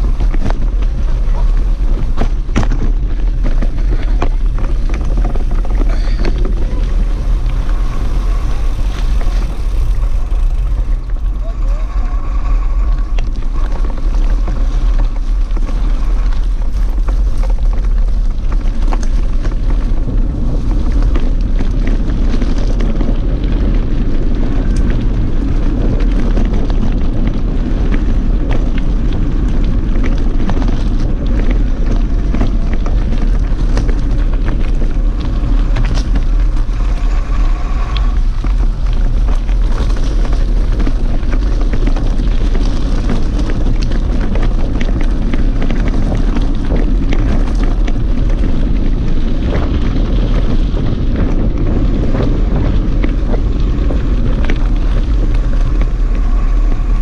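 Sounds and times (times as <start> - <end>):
bike clicks and rattles: 0.0 - 57.0
tyres crunching on gravel: 0.0 - 57.0
wind buffeting microphone: 0.0 - 57.0.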